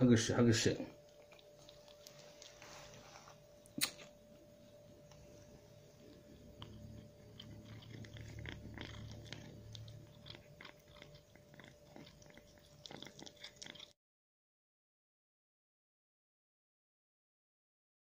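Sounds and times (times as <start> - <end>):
cat crunching food: 0.9 - 3.0, 4.9 - 14.0.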